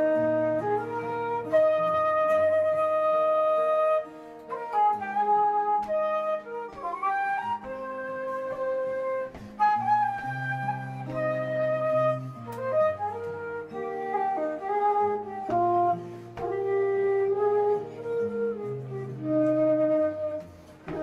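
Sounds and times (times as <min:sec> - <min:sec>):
acoustic guitar: 0:00.0 - 0:21.0
wooden flute melody: 0:00.0 - 0:21.0.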